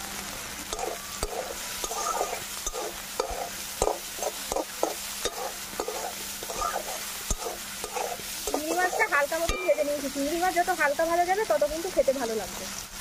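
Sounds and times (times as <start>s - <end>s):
prawns sizzling in oil: 0.0s - 13.0s
metal spatula scraping a pan: 0.7s - 10.3s.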